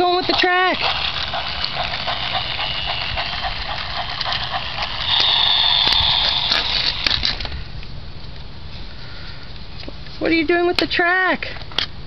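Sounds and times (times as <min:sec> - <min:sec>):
toy train motor whirring: 0:00.0 - 0:07.5
high steady whine: 0:00.0 - 0:07.9.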